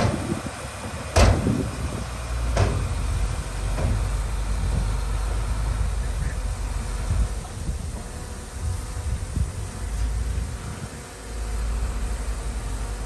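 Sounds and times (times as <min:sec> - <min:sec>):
diesel machinery rumbling: 0:00.0 - 0:13.0
sharp knocks: 0:01.2 - 0:01.5.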